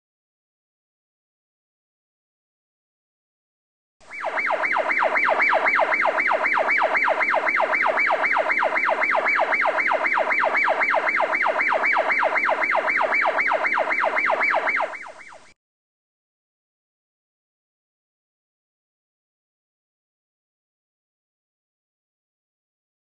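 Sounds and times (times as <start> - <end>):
electronic siren yelping: 4.0 - 15.6.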